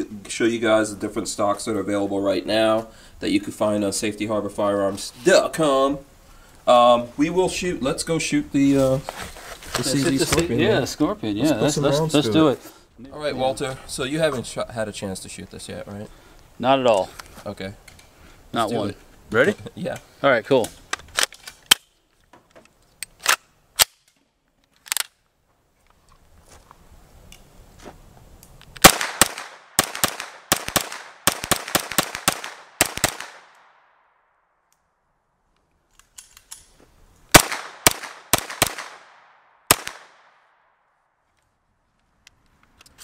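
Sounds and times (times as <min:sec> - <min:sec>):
pistol shots: 0:28.8 - 0:34.0, 0:37.3 - 0:40.6.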